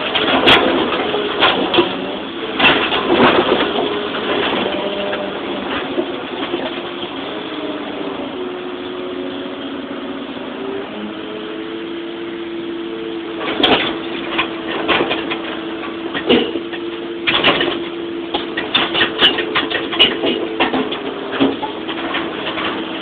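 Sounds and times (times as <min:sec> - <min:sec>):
rubble clattering into metal truck bed: 0:00.0 - 0:07.2, 0:13.4 - 0:23.0
excavator engine running: 0:00.0 - 0:23.0.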